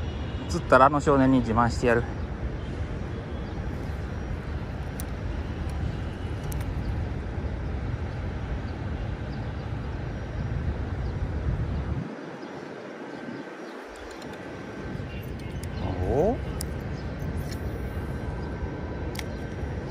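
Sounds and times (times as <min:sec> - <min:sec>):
faint clicks: 0:04.8 - 0:06.9, 0:13.9 - 0:14.5, 0:19.0 - 0:19.9.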